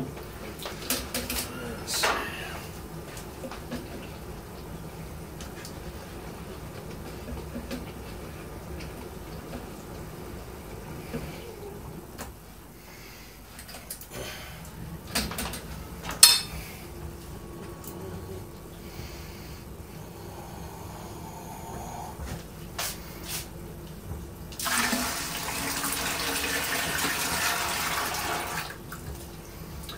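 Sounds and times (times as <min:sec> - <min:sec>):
low steady hum: 0:00.0 - 0:29.9
dishes clattering: 0:15.1 - 0:16.7.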